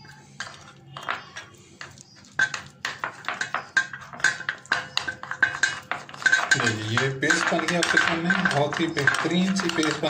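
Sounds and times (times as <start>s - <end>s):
metal spoon clinking on glass bowl: 2.4s - 10.0s.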